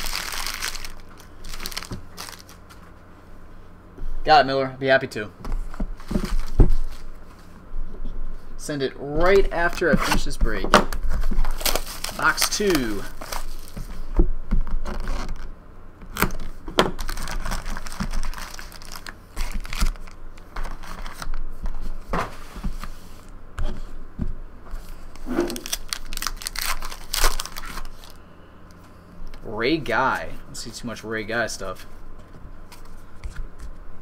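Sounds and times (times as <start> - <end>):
plastic wrappers tearing and crinkling: 0.0 - 2.8, 11.3 - 13.9, 14.6 - 15.5, 16.2 - 21.4, 25.2 - 28.2
cards rustling: 0.0 - 2.9, 11.2 - 14.0, 17.0 - 21.3, 24.8 - 28.2.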